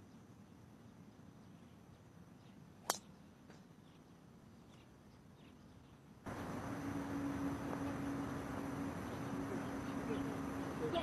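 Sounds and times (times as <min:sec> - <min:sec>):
steady low hum: 0:06.1 - 0:11.0.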